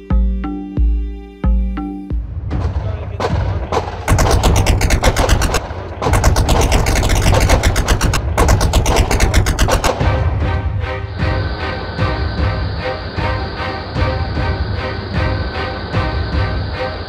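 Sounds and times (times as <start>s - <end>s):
machine-gun fire: 2.6s - 10.2s.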